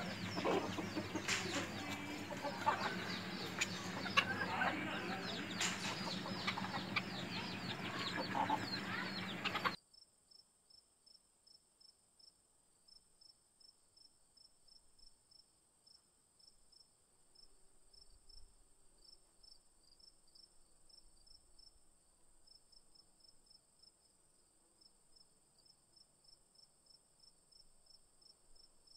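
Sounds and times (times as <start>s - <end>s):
chickens clucking: 0.0s - 9.8s
high cricket chirps: 0.0s - 10.4s.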